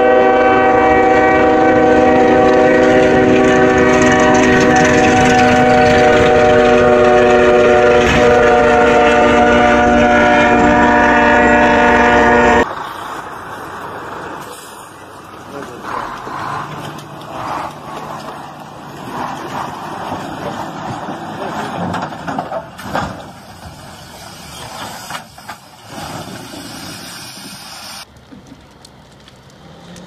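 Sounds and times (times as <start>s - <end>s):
locomotive air horn chord: 0.0s - 12.7s
passing train rumble: 0.0s - 30.0s
road vehicle noise: 0.0s - 30.0s.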